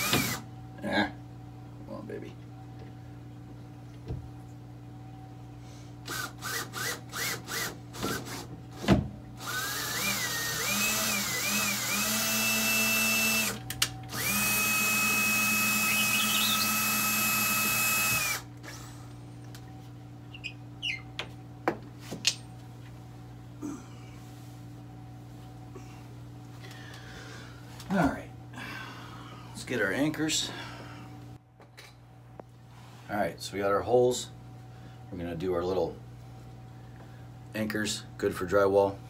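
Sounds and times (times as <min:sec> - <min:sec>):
cordless drill driving screw: 0:00.0 - 0:00.4, 0:06.1 - 0:08.4, 0:09.4 - 0:18.5.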